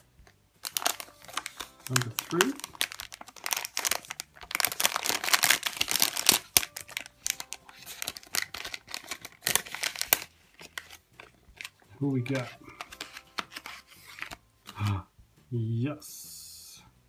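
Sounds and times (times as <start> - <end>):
foil packet crinkling and tearing: 0.6 - 14.9.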